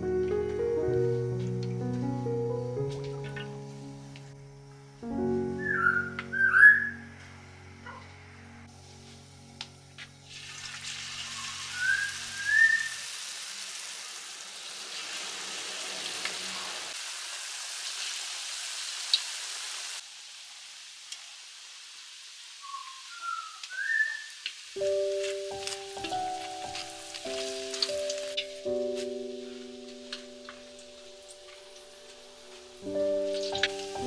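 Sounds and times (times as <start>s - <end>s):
short rising bird-like chirps: 5.6s - 7.1s, 22.6s - 24.4s
food frying in hot oil: 10.2s - 28.8s, 32.6s - 34.0s.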